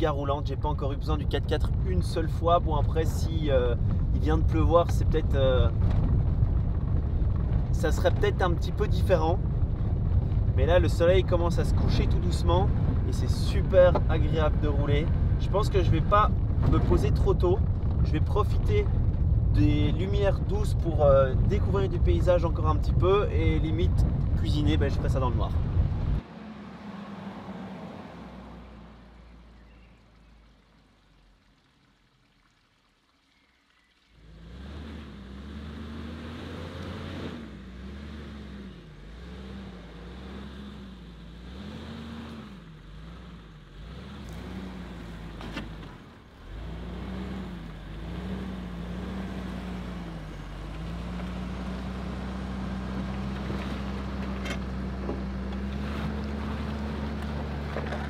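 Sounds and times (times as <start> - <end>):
car engine revving on dirt track: 0.0 - 30.4, 34.2 - 58.0
car driving past: 25.4 - 30.7.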